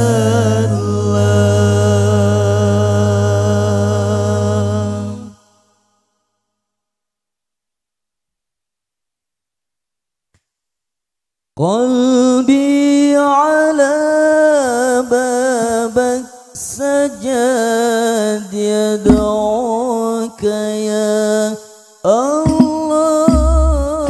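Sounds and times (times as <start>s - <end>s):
man singing unaccompanied: 0.0s - 5.5s, 11.6s - 24.0s
low thump: 19.1s - 19.6s, 22.5s - 24.0s.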